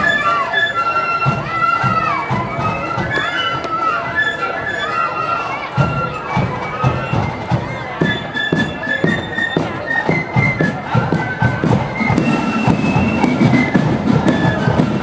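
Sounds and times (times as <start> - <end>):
flute melody: 0.0 - 15.0
steady drum beat: 5.8 - 15.0.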